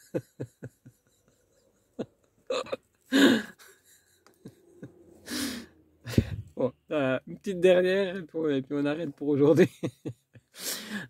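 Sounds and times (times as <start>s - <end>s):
man laughing breathily: 0.0s - 6.5s, 10.0s - 11.0s
noisy breath: 3.1s - 6.5s, 10.5s - 11.0s.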